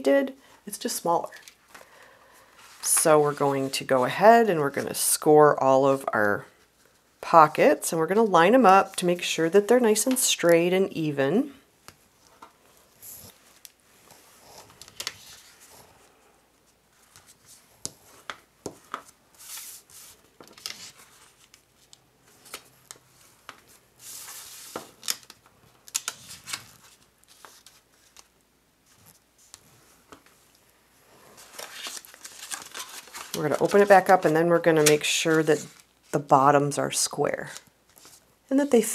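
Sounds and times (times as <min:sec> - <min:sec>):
paper sliding swishes: 0:19.4 - 0:21.4
paper snaps and clicks: 0:25.0 - 0:26.6.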